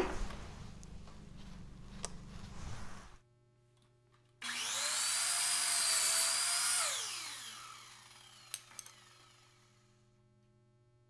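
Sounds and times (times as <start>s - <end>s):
electric saw motor whining: 4.4s - 10.0s.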